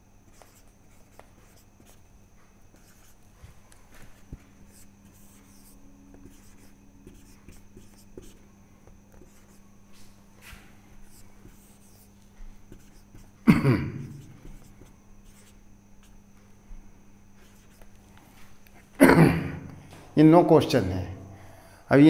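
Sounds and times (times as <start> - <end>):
marker pen scratching on whiteboard: 0.2 - 2.0, 2.7 - 3.2, 3.9 - 8.4, 9.1 - 16.2, 17.4 - 18.0.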